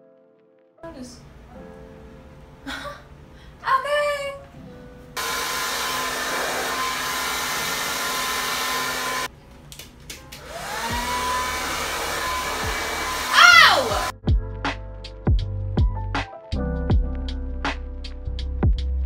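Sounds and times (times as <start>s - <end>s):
hair dryer blowing: 5.2s - 9.3s, 10.3s - 14.1s.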